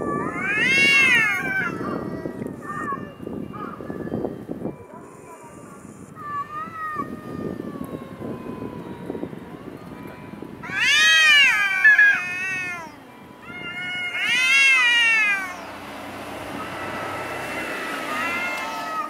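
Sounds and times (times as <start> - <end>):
cat wailing low: 0.0 - 3.1, 6.2 - 9.0, 10.6 - 15.7, 16.6 - 19.0
cats yowling: 0.0 - 3.8, 5.2 - 9.6, 10.6 - 15.8, 16.4 - 19.0.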